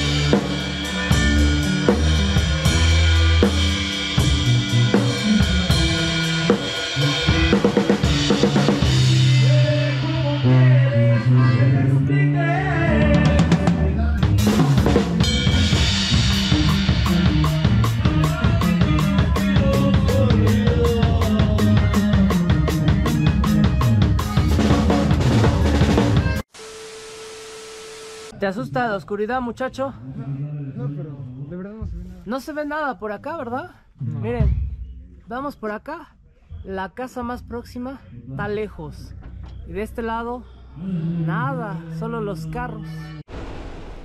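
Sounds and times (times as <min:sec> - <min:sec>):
dance music with drum beat: 0:14.3 - 0:26.5.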